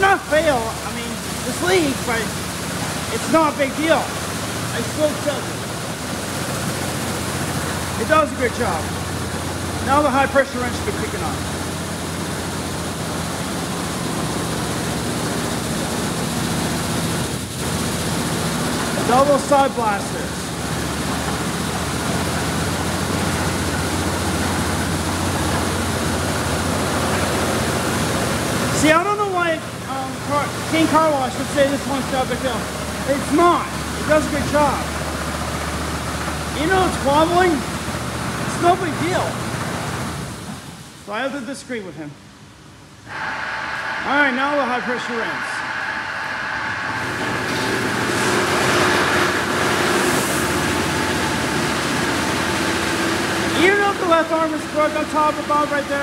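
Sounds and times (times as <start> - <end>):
high-pressure water spraying: 0.0 - 40.8, 43.1 - 56.0
steady machine hum: 0.0 - 56.0
low hum: 43.0 - 52.6.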